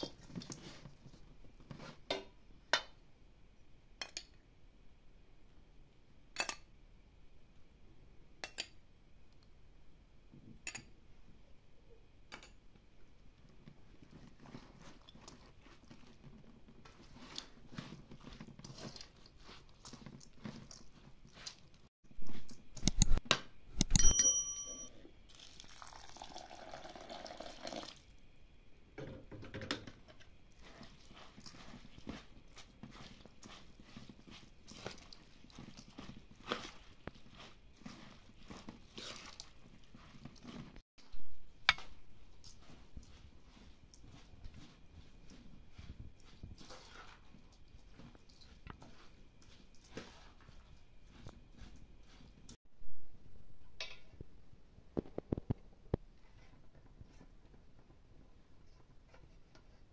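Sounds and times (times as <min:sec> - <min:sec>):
metal clanks ringing: 0:23.8 - 0:24.9
pots and utensils clinking: 0:23.8 - 0:25.0, 0:53.8 - 0:54.2
water pouring: 0:25.3 - 0:28.1.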